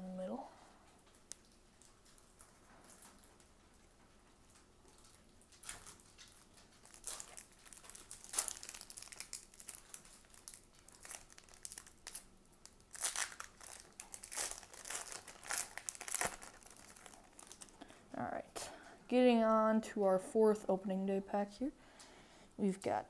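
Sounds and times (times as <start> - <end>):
foil wrapper crinkling: 1.1 - 3.5, 4.5 - 18.0.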